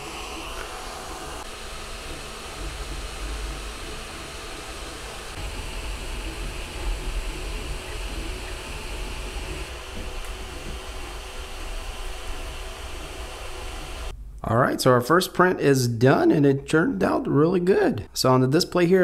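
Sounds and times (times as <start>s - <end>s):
low uneven mechanical rumble: 0.0s - 14.4s
cooling fans humming: 0.0s - 14.7s.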